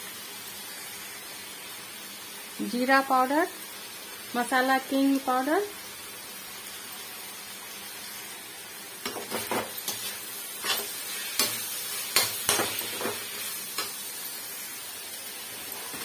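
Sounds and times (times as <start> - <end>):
frying sizzle: 0.0 - 16.0
spoon scraping metal pan: 9.0 - 14.0.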